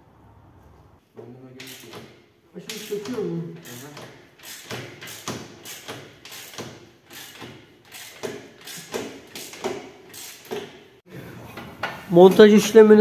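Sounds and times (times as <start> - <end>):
ratchet wrench clicking: 1.6 - 2.0, 2.7 - 10.5.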